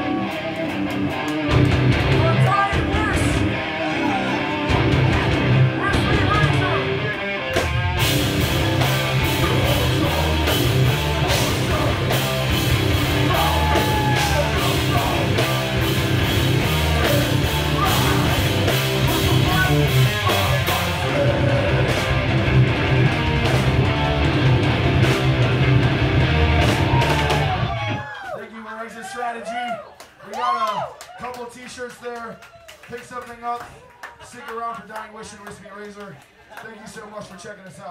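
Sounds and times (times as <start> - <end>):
bass guitar: 0.0 - 28.0
distorted electric guitars: 0.0 - 28.0.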